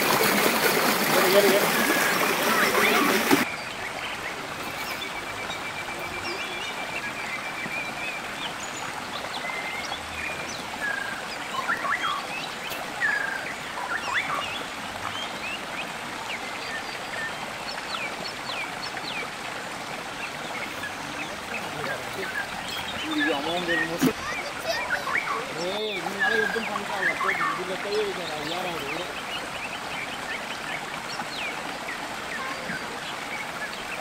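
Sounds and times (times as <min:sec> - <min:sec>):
splashes in water: 0:00.0 - 0:03.8
stream flowing over rocks: 0:00.0 - 0:34.0
birds chirping and whistling: 0:20.6 - 0:29.1.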